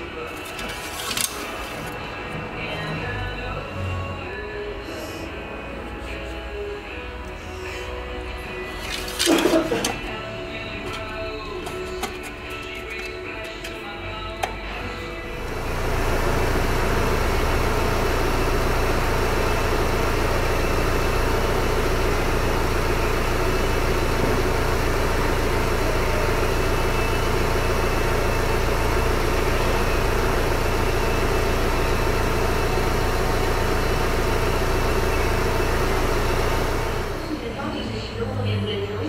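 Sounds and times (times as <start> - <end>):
diesel engine idling: 14.5 - 39.0.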